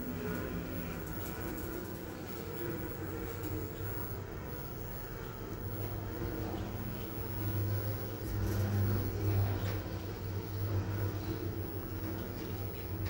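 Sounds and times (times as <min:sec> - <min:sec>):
elevator hum: 0:00.0 - 0:13.0.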